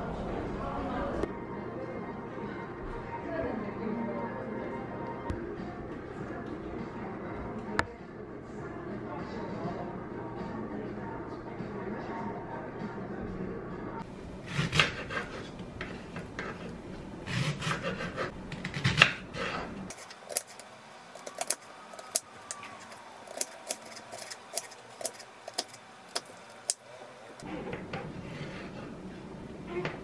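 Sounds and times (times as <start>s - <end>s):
knife chopping on wooden board: 17.3s - 19.2s.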